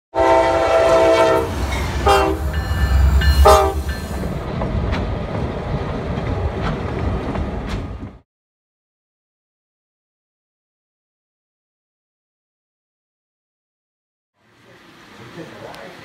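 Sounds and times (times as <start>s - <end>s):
locomotive air horn blasts: 0.1s - 4.1s
train rumbling past: 0.2s - 8.2s
train wheel clicks: 2.6s - 8.2s.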